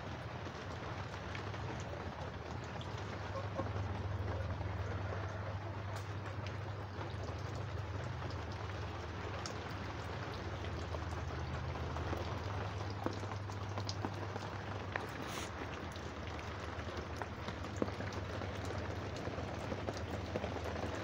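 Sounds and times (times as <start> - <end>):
heavy rain hissing: 14.9 - 15.7.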